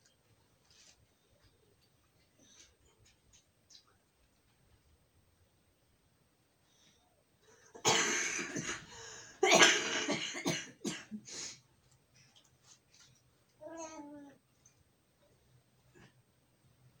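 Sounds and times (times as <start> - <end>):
person coughing: 7.8 - 11.2.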